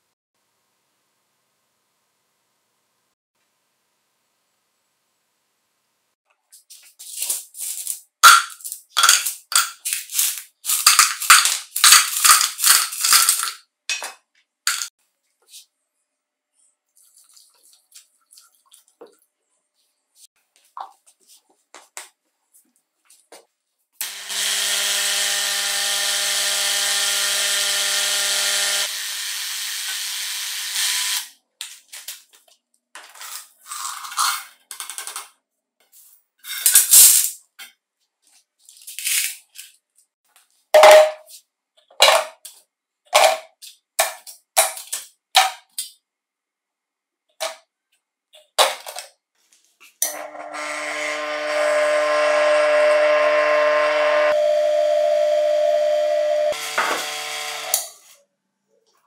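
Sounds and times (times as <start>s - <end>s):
metal parts clinking into containers: 7.0s - 14.9s, 36.4s - 37.4s, 38.7s - 39.8s.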